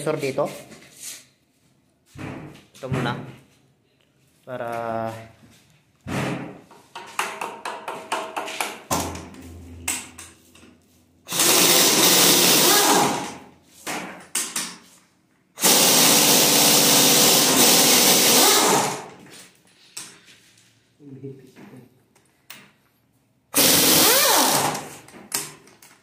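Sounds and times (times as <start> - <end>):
power wrench running: 11.3 - 13.5, 15.6 - 19.2, 23.6 - 25.0.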